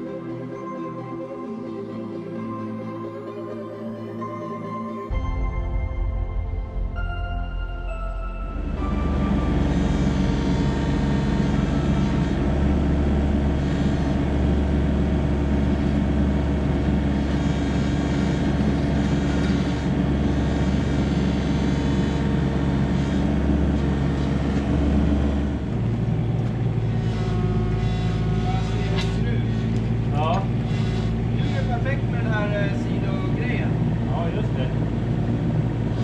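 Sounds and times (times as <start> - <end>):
diesel engine running: 5.1 - 36.0.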